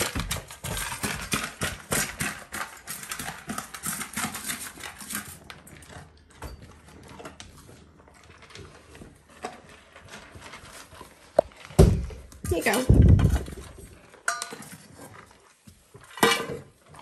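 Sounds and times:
dog crunching dry kibble: 0:00.0 - 0:17.0.

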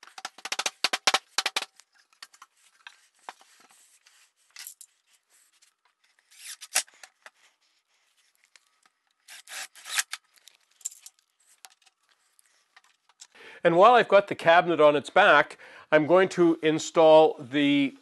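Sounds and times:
impact driver driving screws: 0:09.3 - 0:10.2.

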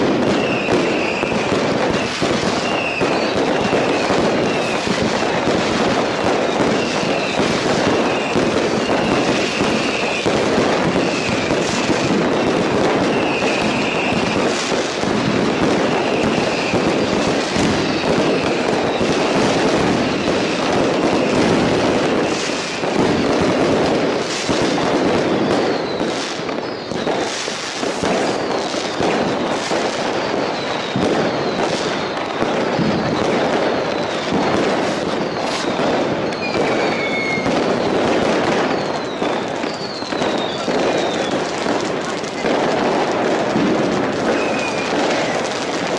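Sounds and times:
fireworks bangs crackling: 0:00.0 - 0:45.9
short firework whistles: 0:00.0 - 0:45.9
falling whistles: 0:00.3 - 0:04.9, 0:06.6 - 0:12.1, 0:12.9 - 0:14.6, 0:15.8 - 0:21.4, 0:25.2 - 0:27.4, 0:28.2 - 0:34.4, 0:35.0 - 0:41.5, 0:44.4 - 0:45.5.

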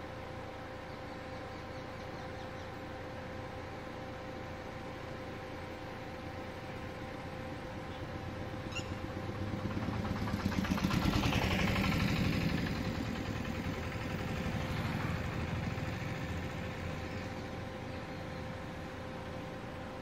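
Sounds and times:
faint steady hum: 0:00.0 - 0:10.4, 0:12.4 - 0:20.0
vehicle engine passing by: 0:08.8 - 0:18.0.

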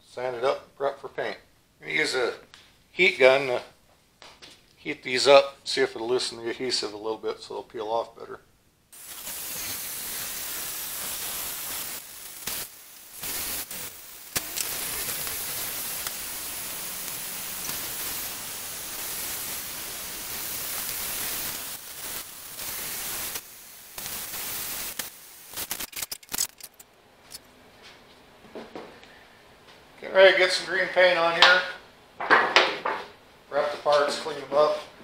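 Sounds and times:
heat gun blowing: 0:09.0 - 0:26.8.

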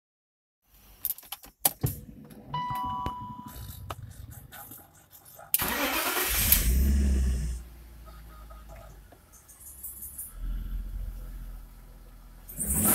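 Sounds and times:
car engine starting: 0:01.8 - 0:12.9
starter motor cranking engine: 0:05.6 - 0:07.4.

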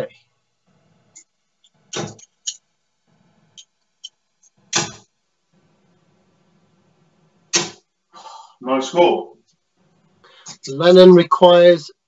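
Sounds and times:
darts thudding into dartboard: 0:01.9 - 0:02.3, 0:04.7 - 0:05.0, 0:07.5 - 0:07.8.

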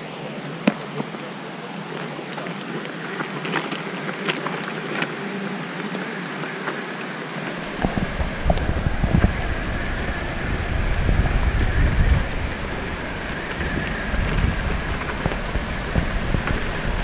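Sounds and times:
wheels rumbling over gravel: 0:01.9 - 0:17.0
wind on microphone: 0:07.5 - 0:17.0.

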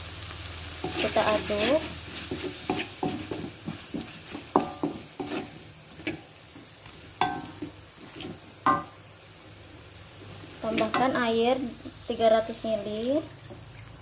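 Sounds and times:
light sizzle: 0:00.0 - 0:14.0
spatula scraping wok: 0:00.6 - 0:09.0, 0:10.2 - 0:12.1.

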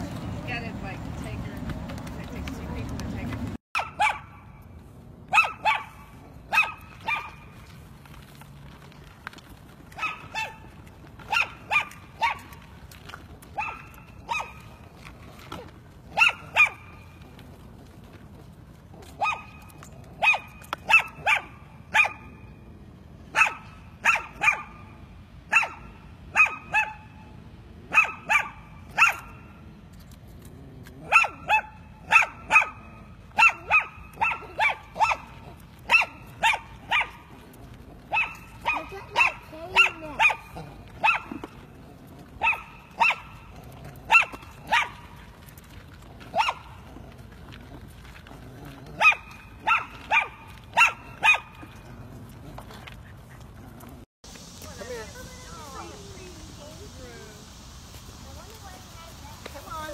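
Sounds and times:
small dog barking: 0:03.8 - 0:04.4, 0:05.3 - 0:07.4, 0:09.9 - 0:10.6, 0:11.3 - 0:12.6, 0:13.6 - 0:14.7, 0:16.1 - 0:16.9, 0:19.2 - 0:19.6, 0:20.2 - 0:22.3, 0:23.3 - 0:24.8, 0:25.5 - 0:27.1, 0:27.9 - 0:29.4, 0:31.0 - 0:37.2, 0:38.1 - 0:41.4, 0:42.4 - 0:43.4, 0:44.1 - 0:45.0, 0:46.3 - 0:46.7, 0:49.0 - 0:51.6.

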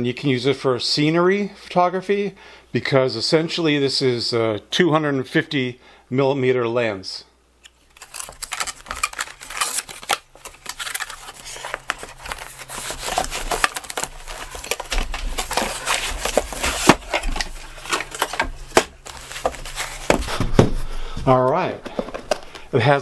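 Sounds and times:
cardboard packaging rustling: 0:07.7 - 0:22.7.

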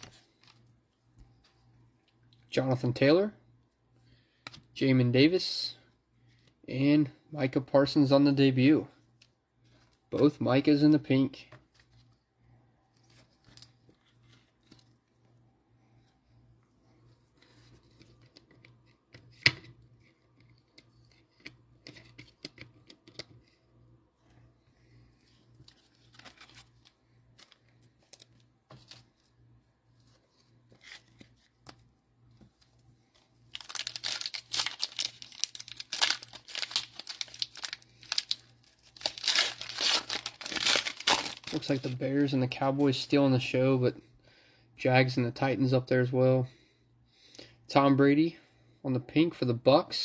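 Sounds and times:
plastic wrapper crinkling and tearing: 0:25.6 - 0:29.2, 0:33.2 - 0:42.0.

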